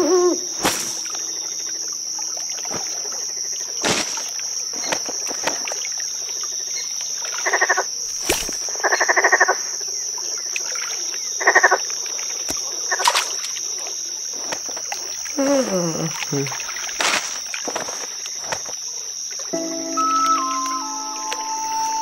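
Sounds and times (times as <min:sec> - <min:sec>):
crickets chirring: 0:00.0 - 0:22.0
frog rattling croaks: 0:07.4 - 0:07.9, 0:08.8 - 0:09.6, 0:11.4 - 0:11.8, 0:12.8 - 0:13.1.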